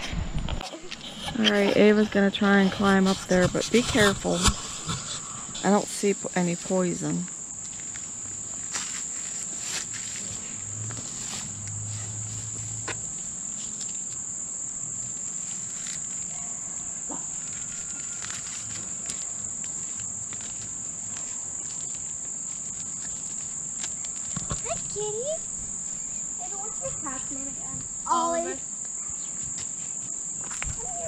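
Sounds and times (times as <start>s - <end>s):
crickets trilling: 0.0s - 31.0s
leaves rustling and clicking: 2.8s - 14.3s, 14.9s - 28.1s.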